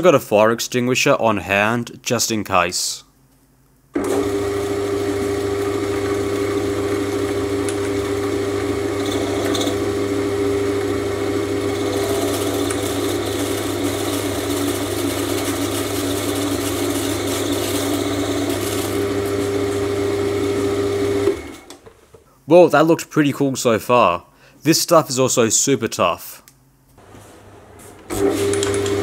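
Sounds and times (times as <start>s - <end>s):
lathe motor whine and hum: 4.0s - 21.7s.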